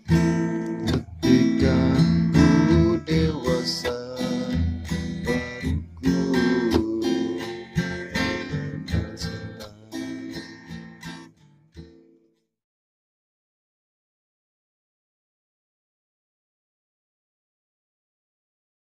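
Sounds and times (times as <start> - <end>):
song with strummed acoustic guitar: 0.0 - 12.5.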